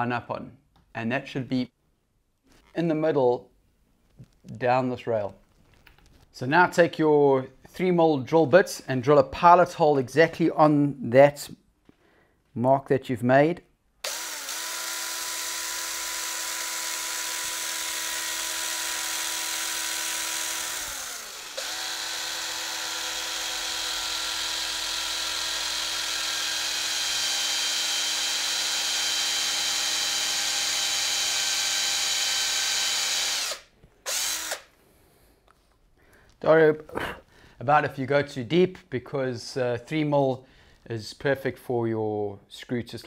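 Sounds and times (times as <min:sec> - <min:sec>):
cordless drill motor whine: 0:14.0 - 0:34.7.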